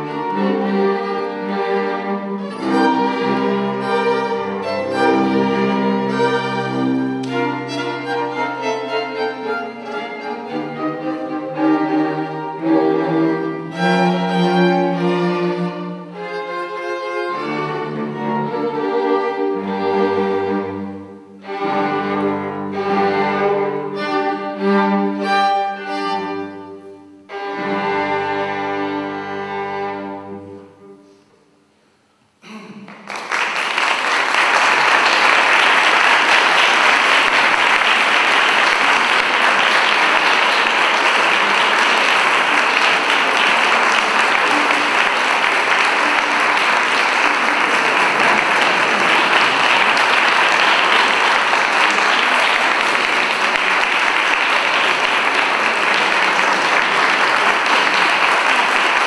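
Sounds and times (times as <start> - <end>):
string quartet chords: 0.0 - 31.8, 34.7 - 59.0
audience applause: 32.9 - 59.0.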